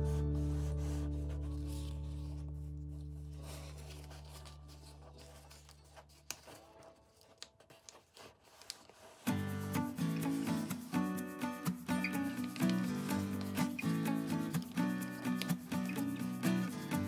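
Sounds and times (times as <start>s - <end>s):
background music chord: 0.0s - 4.6s
paper rustling and crinkling: 0.6s - 11.0s, 11.6s - 16.4s.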